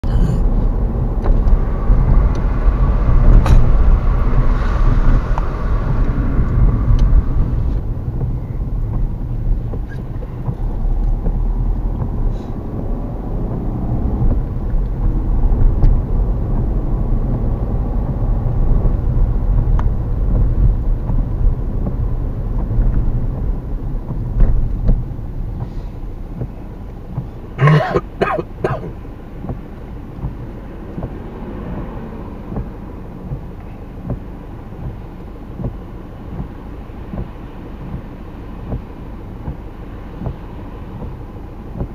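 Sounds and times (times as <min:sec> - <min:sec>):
car engine and tyres rumbling: 0:00.0 - 0:41.9
wet tyres hissing: 0:01.6 - 0:33.3.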